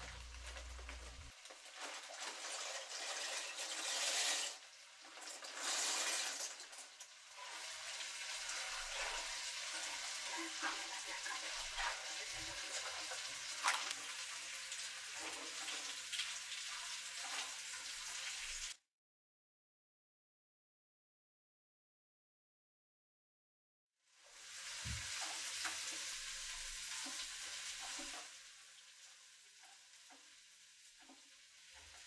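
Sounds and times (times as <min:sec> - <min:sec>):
dry pasta pouring into pot: 0:00.0 - 0:06.9
pot boiling hiss: 0:00.0 - 0:18.8, 0:24.0 - 0:32.0.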